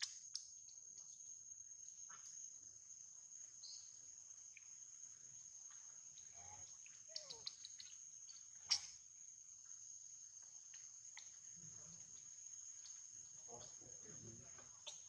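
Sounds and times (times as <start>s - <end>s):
insects trilling: 0.0s - 15.0s
faint falling calls: 6.1s - 9.0s.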